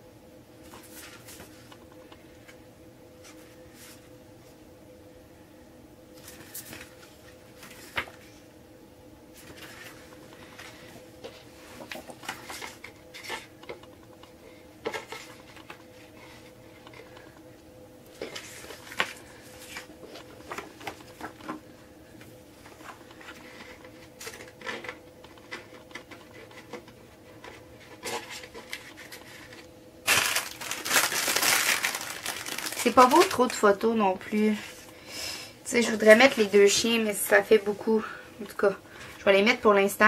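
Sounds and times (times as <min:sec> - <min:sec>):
packaging crinkling: 0:27.9 - 0:33.8.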